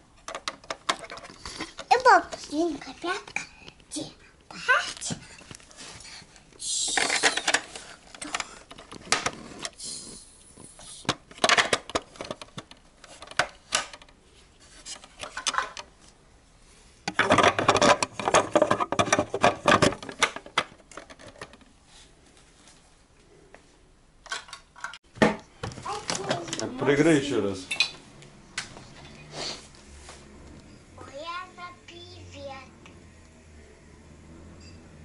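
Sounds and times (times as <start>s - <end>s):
small objects clicking and knocking: 6.8s - 9.7s
clattering: 17.1s - 21.6s.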